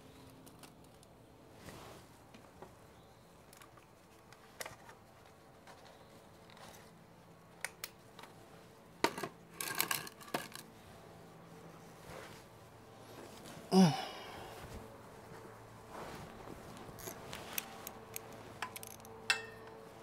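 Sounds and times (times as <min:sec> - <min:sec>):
metal tools clinking: 0:17.0 - 0:19.8.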